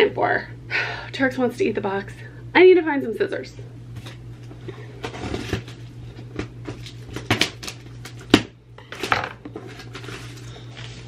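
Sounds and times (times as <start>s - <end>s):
cardboard scraping and rustling: 5.0s - 5.9s, 8.9s - 11.0s.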